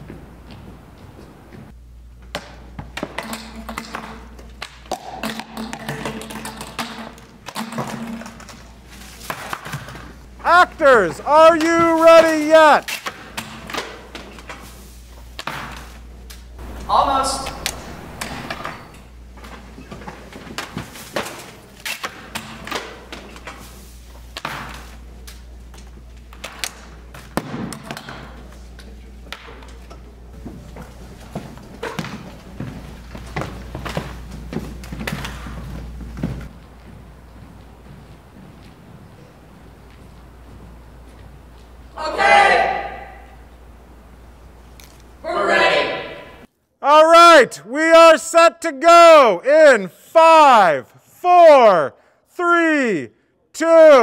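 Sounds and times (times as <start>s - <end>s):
steady low hum: 0.0s - 9.2s, 13.2s - 19.8s, 28.2s - 46.5s.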